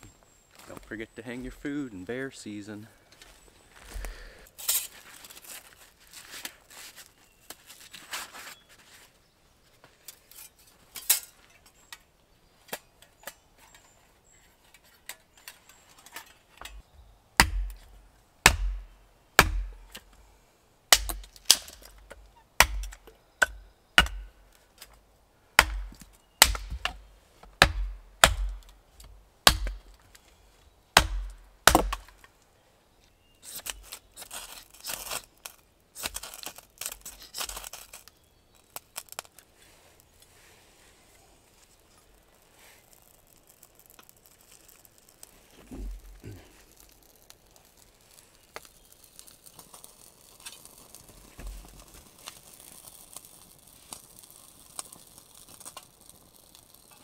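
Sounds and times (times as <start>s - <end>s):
hatchet chopping kindling: 17.4s - 20.0s, 20.9s - 24.4s, 25.6s - 27.0s, 27.6s - 28.7s, 29.4s - 30.0s, 31.0s - 32.2s.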